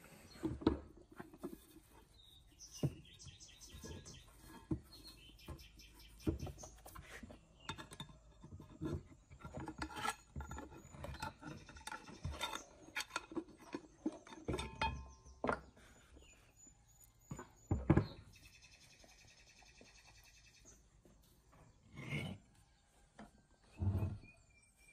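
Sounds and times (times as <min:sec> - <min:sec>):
metal knocks and scrapes: 0:00.3 - 0:16.0.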